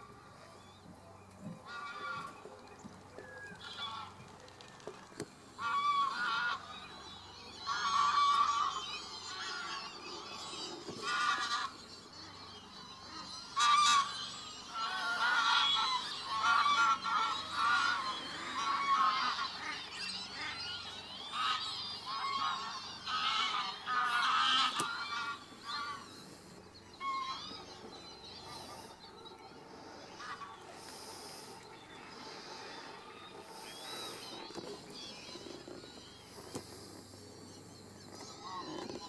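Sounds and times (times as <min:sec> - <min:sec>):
geese honking in flight: 0:05.6 - 0:06.8, 0:07.6 - 0:10.0, 0:13.1 - 0:26.1.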